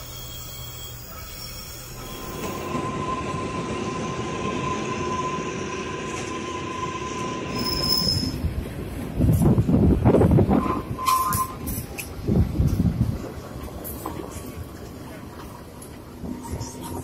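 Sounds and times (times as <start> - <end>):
train wheels squealing: 0.0 - 8.5, 10.5 - 11.9
train rattling along: 0.0 - 17.0
train running with low hum: 0.0 - 17.0.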